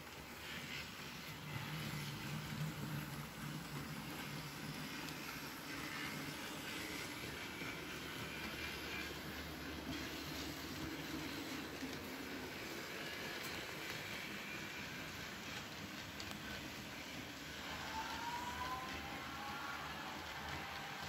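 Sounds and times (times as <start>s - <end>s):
model train wheels rolling: 0.0s - 21.0s.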